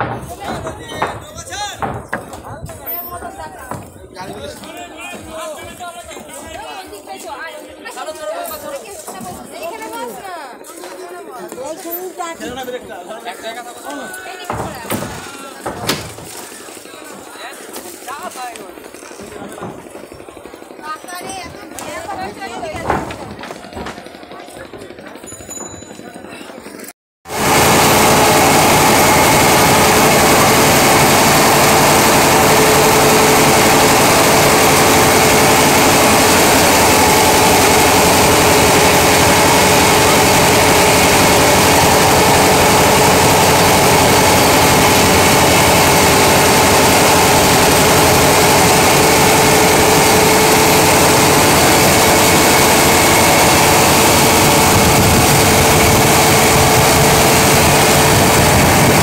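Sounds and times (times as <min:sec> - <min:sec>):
boat engine droning: 0:27.3 - 0:59.0
rushing water noise: 0:27.3 - 0:59.0.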